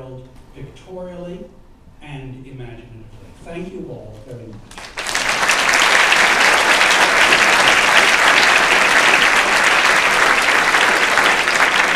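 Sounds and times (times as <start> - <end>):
audience applauding: 4.7 - 11.9.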